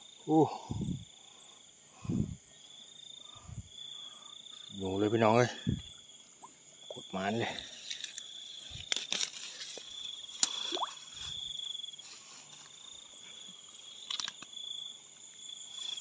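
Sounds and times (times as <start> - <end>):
night insects trilling: 0.0 - 16.0
grass rustling: 7.4 - 14.4
sharp clicks of grass stems: 7.8 - 10.9.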